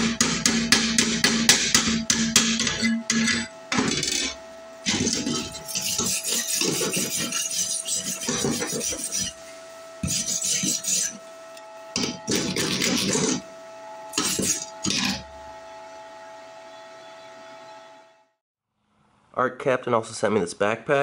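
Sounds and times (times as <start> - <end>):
wire brush scrubbing steel: 4.0 - 11.2, 14.1 - 15.2.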